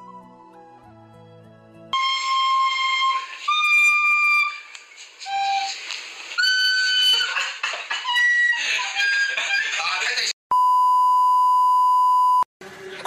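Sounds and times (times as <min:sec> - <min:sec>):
shrill recorder notes: 0:02.0 - 0:05.8, 0:06.4 - 0:07.3.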